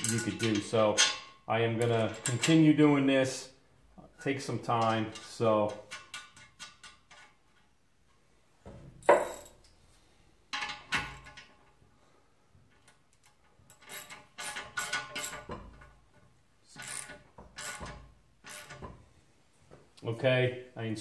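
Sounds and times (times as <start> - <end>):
metal nuts clinking: 0.0 - 2.8, 4.6 - 7.8, 9.0 - 9.8, 10.5 - 11.8, 12.7 - 19.0.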